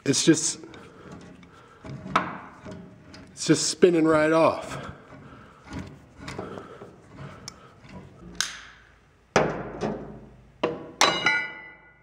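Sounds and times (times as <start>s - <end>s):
sharp ringing metal clanks: 11.0s - 12.0s.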